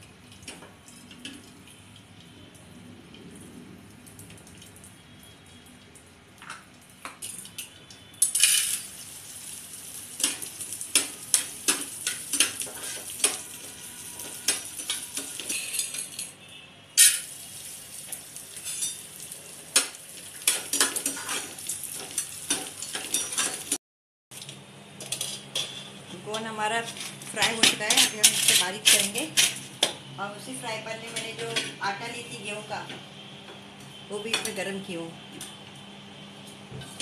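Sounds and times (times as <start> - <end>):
frying in oil with pops: 0.0 - 16.3, 17.0 - 30.1
utensils clinking against pans: 7.2 - 8.9, 10.2 - 13.6, 14.2 - 16.4, 18.5 - 19.1, 19.8 - 23.8, 25.0 - 30.0, 31.0 - 31.8, 34.2 - 34.7.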